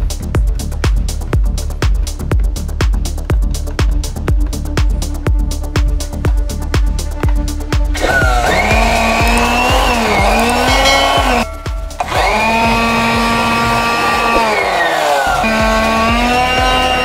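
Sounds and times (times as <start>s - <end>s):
background music with steady beat: 0.0s - 17.0s
small electric motor whining: 7.8s - 17.0s.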